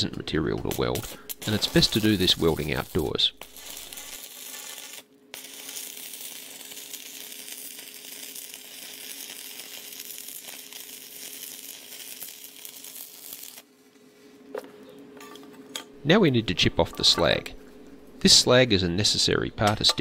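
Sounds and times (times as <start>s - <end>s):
welding arc crackling: 0.6s - 13.7s.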